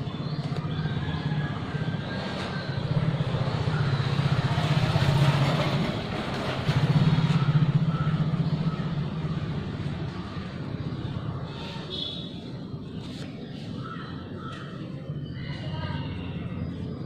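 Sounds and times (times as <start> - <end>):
engine running with low pulse: 0.0 - 11.5.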